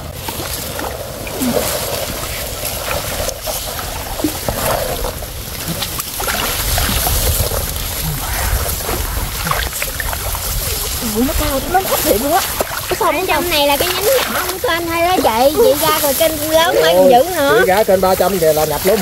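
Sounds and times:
low rumble: 0.0 - 13.4
water splashing and sloshing: 0.0 - 19.0
faint voices: 7.9 - 19.0.

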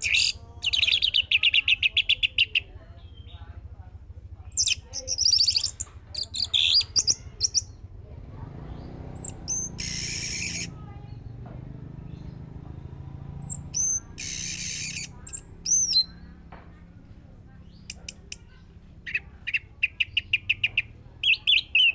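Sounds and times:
thrush singing: 4.5 - 21.9.

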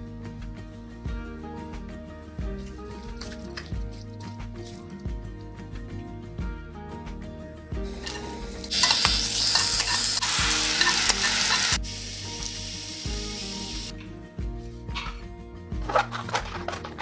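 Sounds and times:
background music: 0.0 - 17.0
mushrooms sizzling in oil: 8.0 - 13.9.

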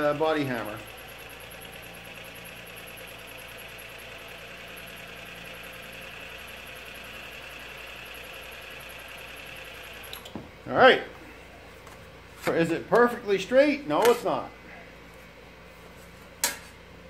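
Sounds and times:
bead roller motor hum and whine: 0.0 - 10.8.

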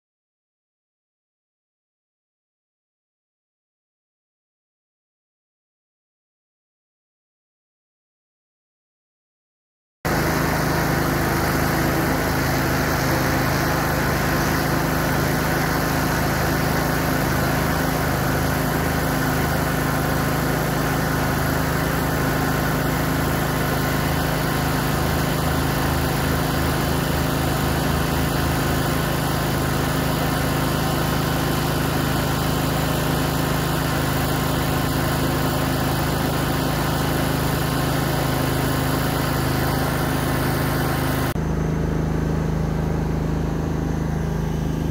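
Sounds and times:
drone rotors humming: 10.1 - 30.1, 38.3 - 42.2.

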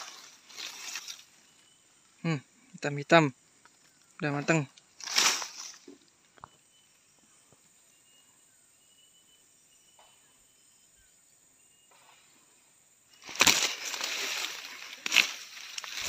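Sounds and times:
leaves rustling: 0.0 - 1.8, 3.6 - 6.2, 13.1 - 16.0.

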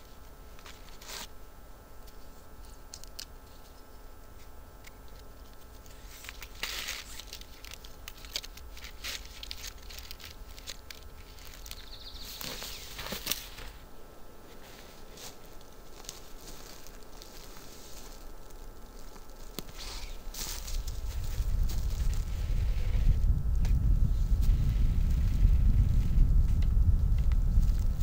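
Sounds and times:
cord rustling and clicking: 5.1 - 13.8.

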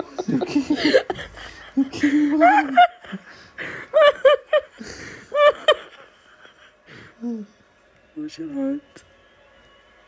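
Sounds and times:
person laughing: 0.0 - 6.2.

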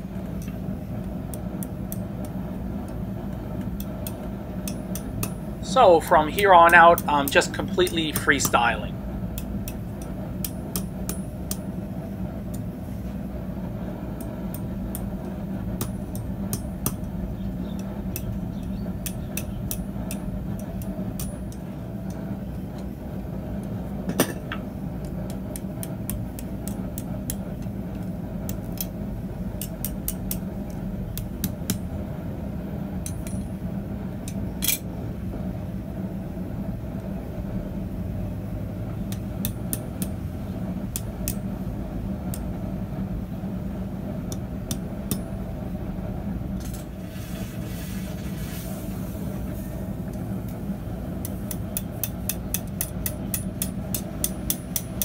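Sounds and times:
hammer tapping metal on anvil: 1.3 - 3.0, 3.7 - 5.4, 6.4 - 8.7, 9.3 - 11.7, 15.8 - 17.1, 17.7 - 22.2, 24.1 - 28.9, 29.6 - 30.4, 31.1 - 31.9, 33.0 - 33.6, 39.1 - 40.2, 40.9 - 41.5, 44.3 - 45.3, 51.2 - 55.0.

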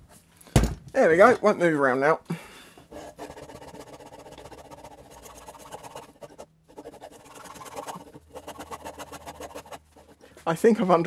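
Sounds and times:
blade sawing through rubber: 2.9 - 10.2.

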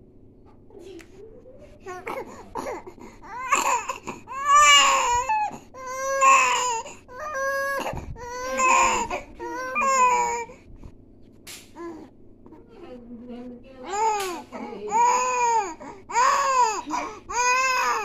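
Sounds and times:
infant crying: 1.9 - 10.6, 13.9 - 18.0.

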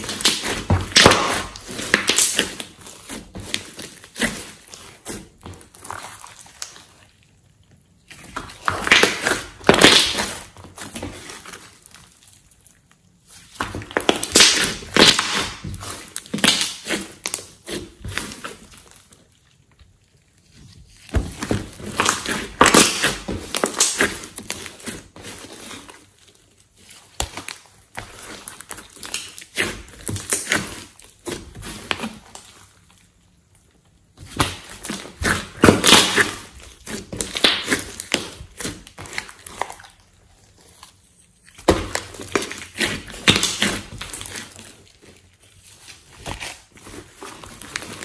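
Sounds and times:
slime squishing: 0.0 - 48.0.

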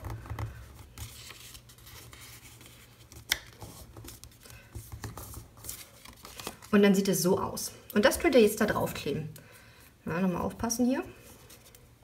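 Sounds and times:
cardstock rustling and folding: 0.0 - 7.1.

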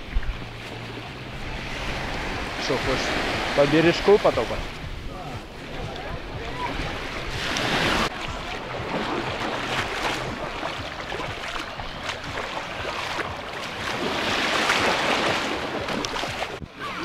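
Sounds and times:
surf washing onto beach: 0.0 - 17.0
wind rumbling on microphone: 4.3 - 17.0.

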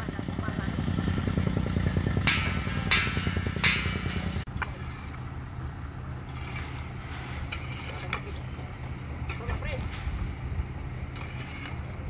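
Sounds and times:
engine humming: 0.0 - 12.0
sharp metal clanks: 2.2 - 5.2
shovels scraping in dirt: 4.5 - 5.3, 6.2 - 12.0.

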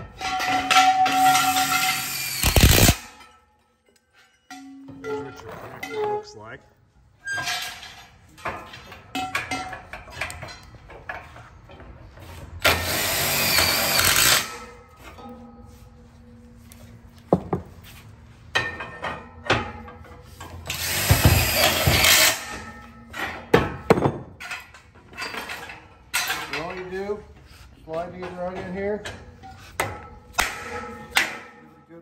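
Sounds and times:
metal knocks and clanks: 0.0 - 6.5, 7.2 - 12.3, 18.4 - 27.2, 27.9 - 32.0
cordless drill driving screws: 2.0 - 3.0, 12.7 - 14.5, 20.7 - 22.4.

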